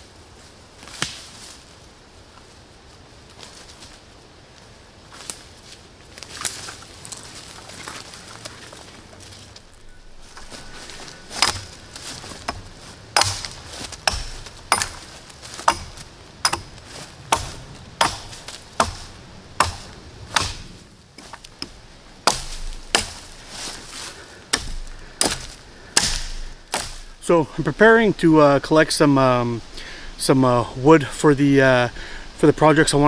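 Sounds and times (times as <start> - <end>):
small axe chopping branches: 10.3 - 27.2.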